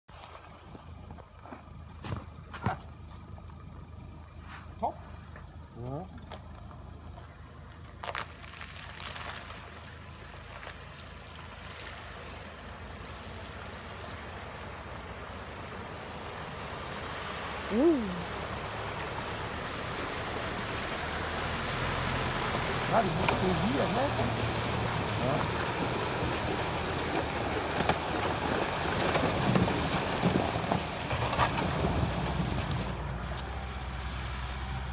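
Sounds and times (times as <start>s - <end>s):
truck engine droning: 0.2s - 34.9s
ice cracking under wheels: 6.2s - 12.0s, 25.2s - 33.4s
water sloshing and splashing: 6.6s - 34.4s.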